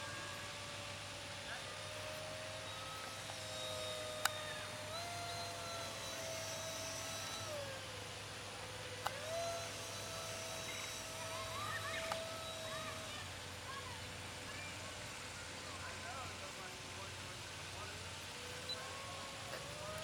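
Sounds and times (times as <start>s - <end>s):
model jet motor whining: 0.0s - 20.0s.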